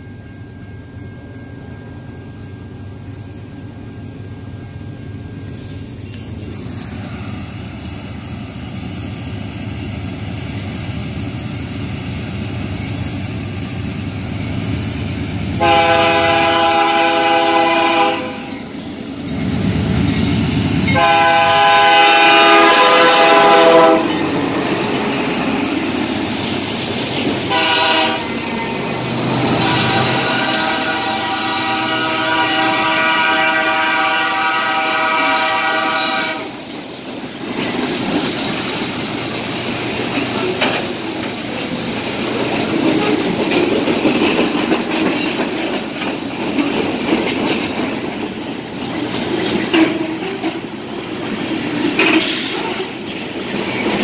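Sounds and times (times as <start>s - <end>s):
diesel locomotive rumble: 0.0s - 54.0s
locomotive air horn blasts: 15.6s - 18.6s, 20.9s - 24.2s, 27.4s - 28.6s, 29.4s - 36.6s.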